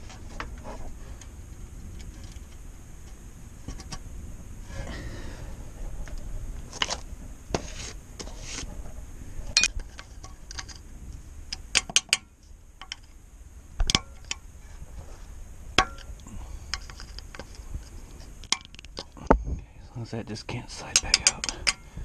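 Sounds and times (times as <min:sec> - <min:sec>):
metal clicks of hand tools: 0:20.9 - 0:21.9.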